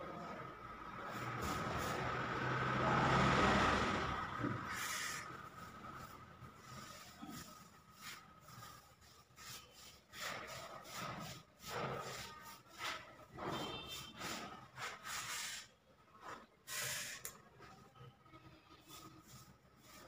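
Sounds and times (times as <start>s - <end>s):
hand tool scraping plaster ceiling: 4.5s - 17.2s, 18.8s - 20.0s.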